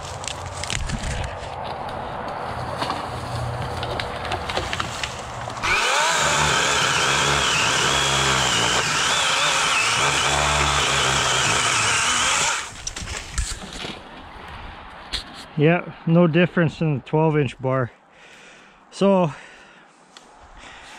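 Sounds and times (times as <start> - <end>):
footsteps crunching through dry brush: 0.0 - 5.6
electric chainsaw motor whine: 5.6 - 12.7.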